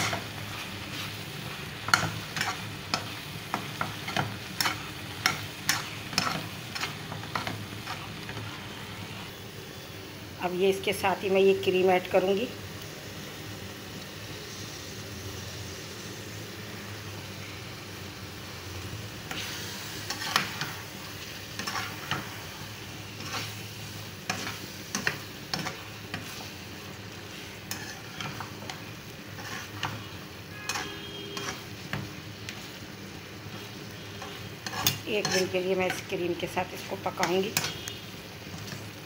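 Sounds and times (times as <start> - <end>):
metal spatula scraping a pan: 0.0 - 8.7, 19.3 - 20.9, 21.5 - 26.6, 27.3 - 32.8, 33.5 - 36.1, 36.8 - 39.0
food sizzling in a pan: 0.0 - 39.0.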